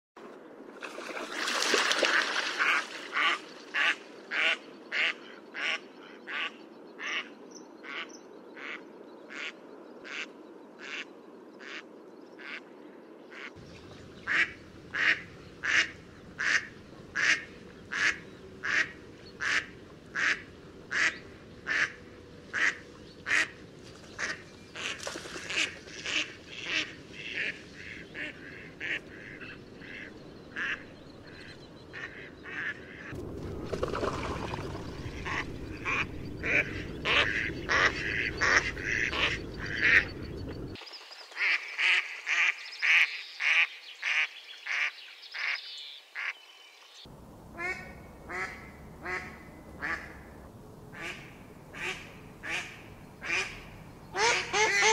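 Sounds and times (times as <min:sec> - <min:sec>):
rushing background noise: 0:13.6 - 0:40.9
ducks quacking: 0:14.2 - 0:33.2, 0:34.9 - 0:40.7, 0:47.6 - 0:54.9.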